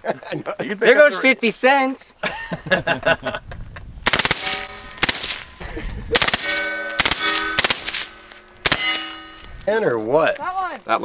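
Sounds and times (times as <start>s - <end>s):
suppressed rifle bursts: 4.1s - 5.4s, 6.2s - 9.0s
ringing tone: 4.4s - 5.6s, 6.4s - 9.7s.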